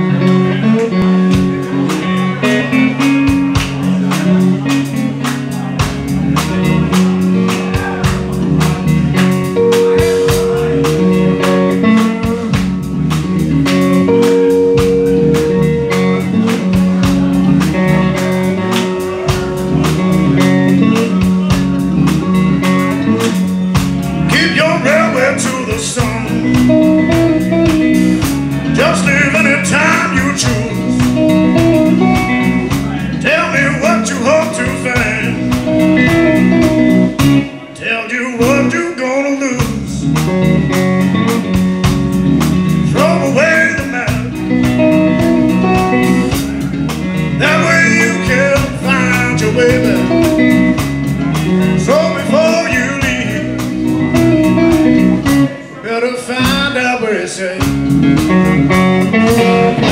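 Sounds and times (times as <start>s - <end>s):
drums: 0.0s - 59.9s
electric bass guitar: 0.0s - 59.9s
electric guitar: 0.0s - 59.9s
man singing: 24.2s - 27.2s, 28.2s - 36.6s, 37.4s - 41.1s, 42.8s - 44.7s, 47.3s - 54.2s, 55.5s - 57.9s.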